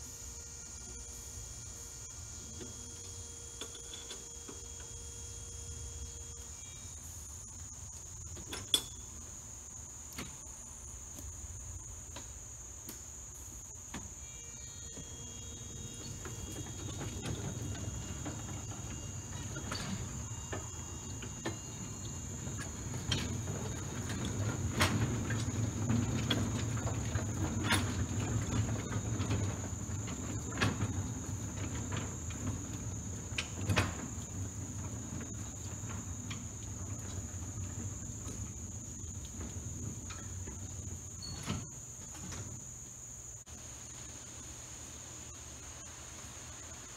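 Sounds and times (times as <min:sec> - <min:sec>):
crickets trilling: 0:00.0 - 0:46.9
model train wheels rumbling: 0:15.0 - 0:43.5.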